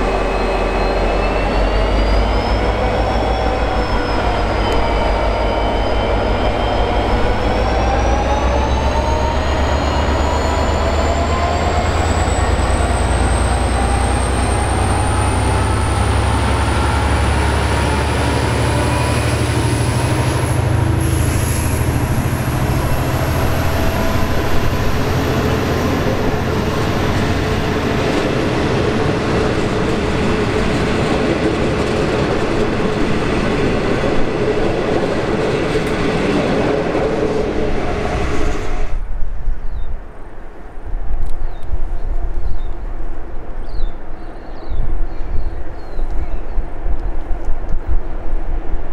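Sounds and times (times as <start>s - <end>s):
locomotive engine rumble: 0.0s - 39.1s
train wheels on rails: 0.0s - 39.1s
high engine whine: 0.0s - 39.2s.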